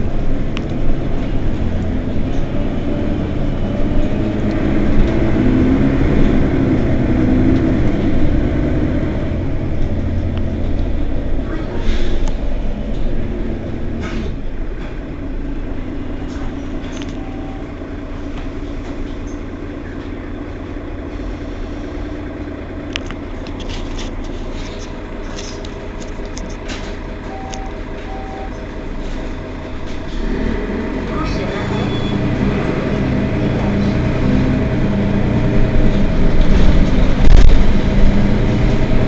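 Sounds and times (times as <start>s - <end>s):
bus engine drone: 0.0s - 39.0s
short faint beeps: 27.3s - 28.5s.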